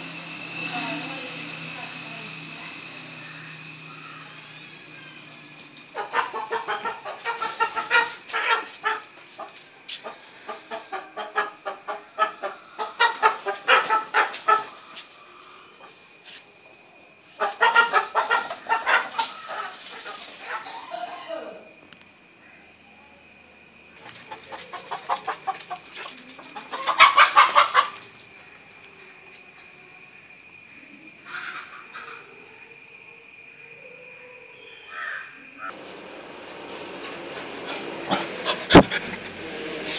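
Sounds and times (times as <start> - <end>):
chickens clucking and cackling: 2.7 - 21.5, 24.0 - 29.6, 31.1 - 33.5, 35.4 - 39.9
crow cawing: 3.2 - 5.1, 34.9 - 35.4.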